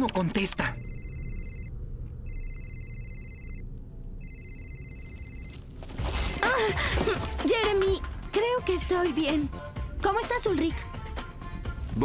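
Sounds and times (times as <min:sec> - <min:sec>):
mobile phone ringing: 0:00.0 - 0:06.2
low rumble: 0:00.3 - 0:08.3.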